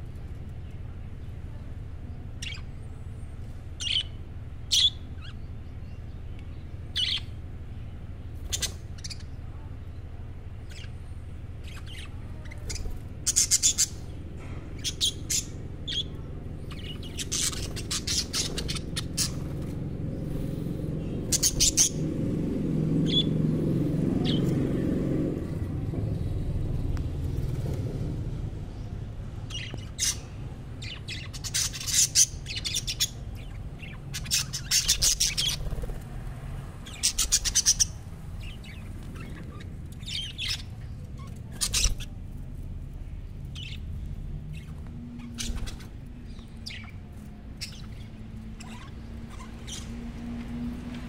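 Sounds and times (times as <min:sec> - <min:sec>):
low background rumble: 0:00.0 - 0:51.0
budgerigars chirping: 0:02.4 - 0:02.6, 0:03.8 - 0:05.4, 0:06.9 - 0:07.4, 0:08.4 - 0:09.4, 0:10.6 - 0:11.0, 0:11.6 - 0:14.2, 0:14.8 - 0:19.7, 0:21.2 - 0:22.1, 0:29.5 - 0:36.0, 0:36.8 - 0:42.2, 0:43.5 - 0:43.9, 0:44.5 - 0:50.6.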